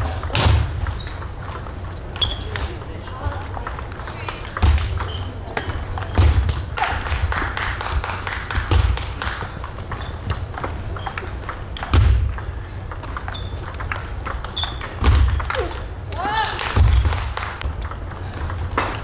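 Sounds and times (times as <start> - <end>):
ping pong ball clicks: 0.2 - 6.5, 8.6 - 16.0, 16.7 - 19.0.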